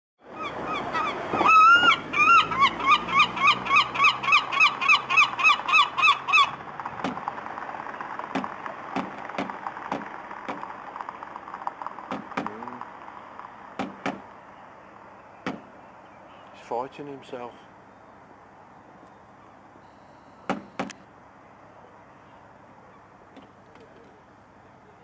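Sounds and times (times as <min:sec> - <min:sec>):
gull calling: 0:00.2 - 0:07.2
bill tapping on car bumper: 0:08.3 - 0:10.7, 0:13.8 - 0:14.3, 0:15.5 - 0:15.7, 0:20.5 - 0:21.0.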